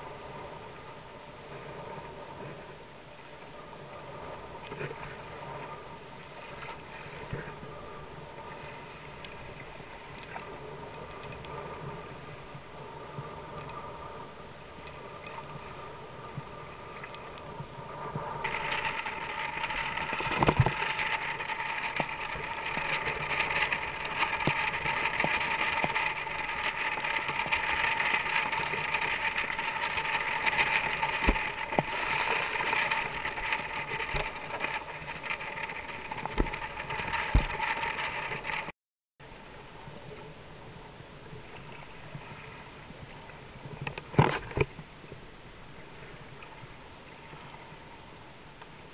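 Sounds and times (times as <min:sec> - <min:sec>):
waves thumping against hull: 0:00.0 - 0:38.7, 0:40.8 - 0:48.9
wind and water rushing: 0:00.0 - 0:38.7.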